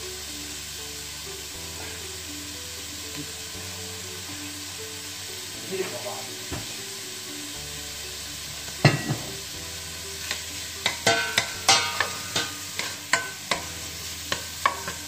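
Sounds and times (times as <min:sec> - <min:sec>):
bacon sizzling in a pot: 0:00.0 - 0:15.0
spatula scraping and knocking pot: 0:10.2 - 0:15.0.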